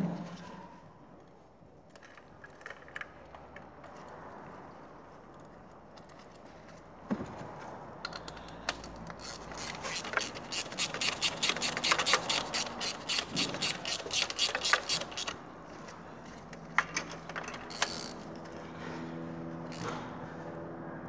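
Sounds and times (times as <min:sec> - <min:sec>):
ratchet wrench clicking: 0:08.1 - 0:15.4, 0:17.4 - 0:18.3, 0:19.7 - 0:19.9.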